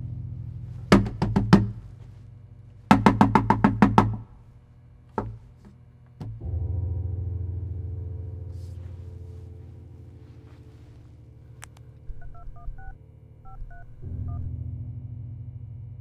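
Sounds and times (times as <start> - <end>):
low droning music tone: 0.0 - 16.0
knuckles knocking on wooden door: 0.9 - 2.0, 2.9 - 4.4, 5.2 - 6.4.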